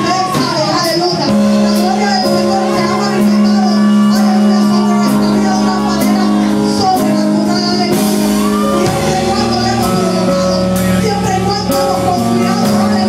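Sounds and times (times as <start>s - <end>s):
electric bass: 0.0s - 13.0s
held keyboard chords: 0.0s - 13.0s
woman singing into a microphone: 8.8s - 13.0s.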